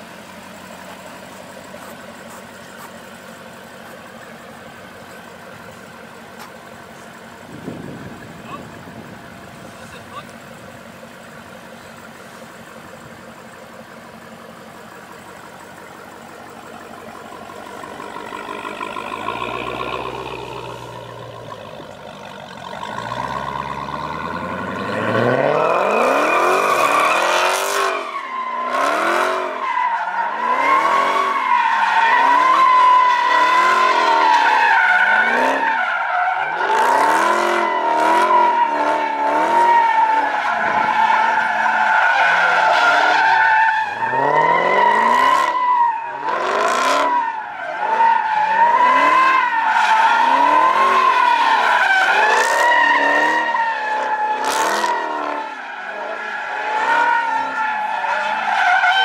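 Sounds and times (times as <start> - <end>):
car engine revving: 0.0 - 59.0
tyre squeal: 46.9 - 59.0.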